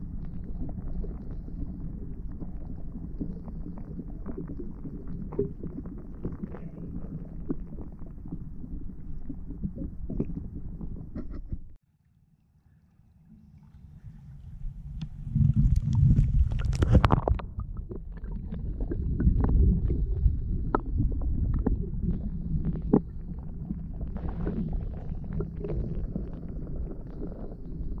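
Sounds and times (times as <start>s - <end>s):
low rumble of moving water: 0.0s - 28.0s
small underwater clicks and knocks: 9.0s - 11.8s, 14.9s - 23.2s.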